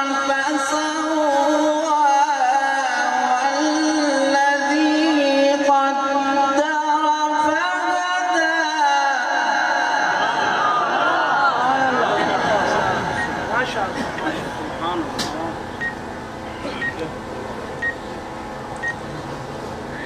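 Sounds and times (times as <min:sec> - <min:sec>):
man chanting melodic recitation: 0:00.0 - 0:09.8.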